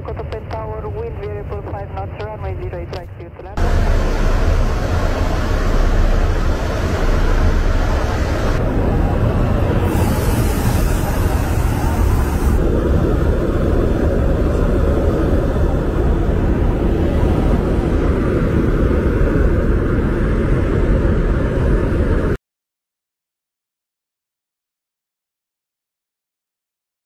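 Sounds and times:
deep rumble of aircraft engines: 0:00.0 - 0:22.4
bright hiss: 0:09.8 - 0:12.6.

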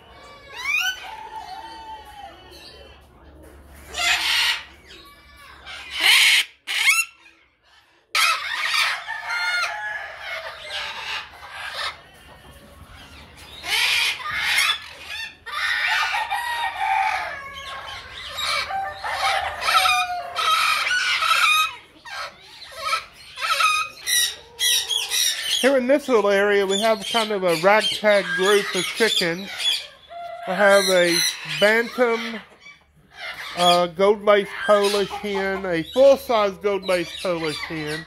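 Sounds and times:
roosters crowing: 0:00.0 - 0:03.1, 0:08.2 - 0:38.0
chickens clucking: 0:00.0 - 0:38.0.

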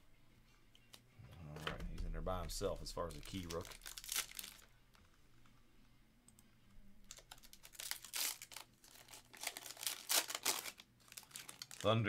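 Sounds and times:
foil wrapper crinkling and tearing: 0:03.0 - 0:05.0, 0:07.0 - 0:12.0.

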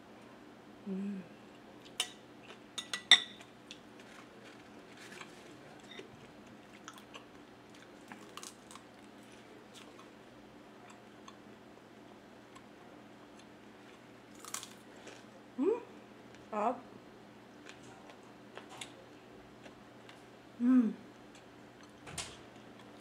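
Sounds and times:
person humming: 0:00.8 - 0:01.4, 0:15.6 - 0:15.9, 0:20.6 - 0:21.0
chewing and mouth sounds: 0:03.4 - 0:10.2.

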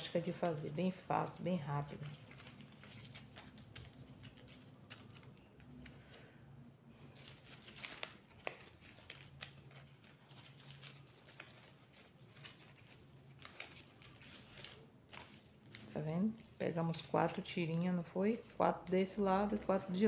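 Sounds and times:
faint low hum: 0:00.0 - 0:20.0
dry straw rustling and crackling: 0:07.2 - 0:17.1.

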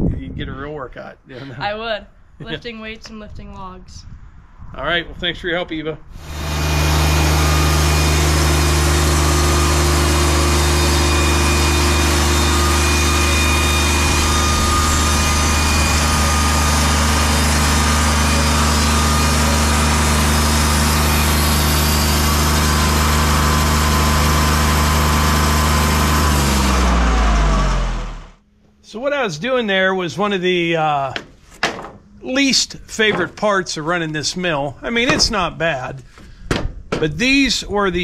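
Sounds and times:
sawmill engine running: 0:06.1 - 0:28.4, 0:32.3 - 0:36.3
band saw cutting boards: 0:06.2 - 0:28.4, 0:31.1 - 0:36.3.

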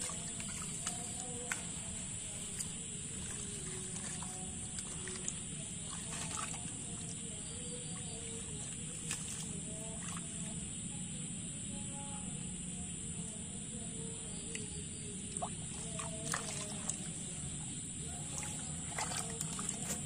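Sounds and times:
hands splashing in muddy water: 0:00.0 - 0:10.4, 0:15.4 - 0:17.5, 0:18.1 - 0:20.0.

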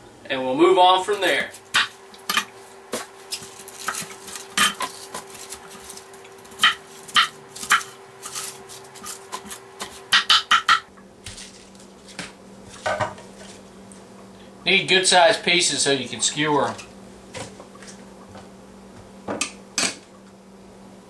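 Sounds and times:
faint steady hum: 0:00.0 - 0:21.0
knife chopping on wooden board: 0:09.0 - 0:10.8.

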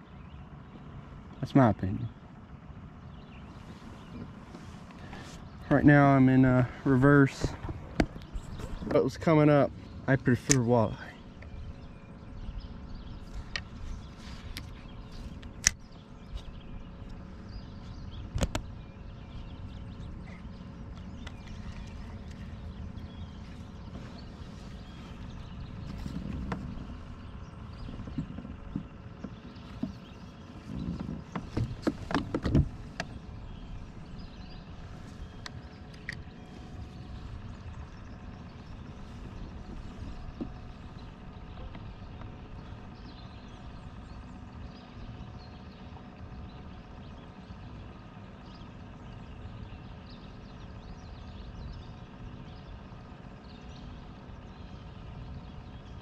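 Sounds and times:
low steady kayak rumble: 0:00.0 - 0:56.0
gear knocking against hull: 0:07.2 - 0:09.3, 0:20.9 - 0:34.5, 0:37.2 - 0:44.2.

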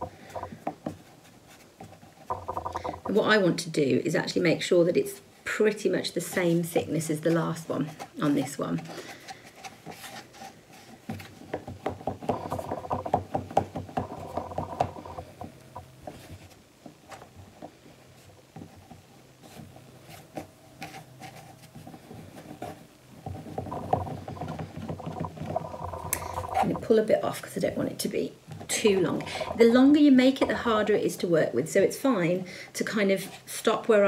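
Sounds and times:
hands rolling clay on wooden table: 0:00.0 - 0:03.4, 0:06.3 - 0:27.0.

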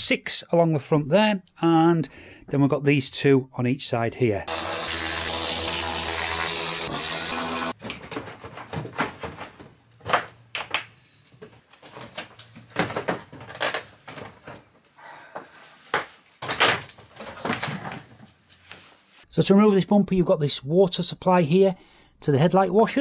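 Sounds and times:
cordless power tool whirring: 0:04.5 - 0:07.8.

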